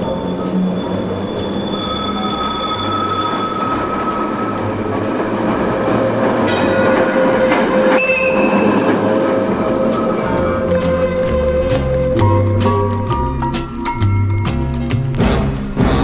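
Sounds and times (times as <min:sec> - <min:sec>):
tram wheels squealing: 0:00.0 - 0:14.6.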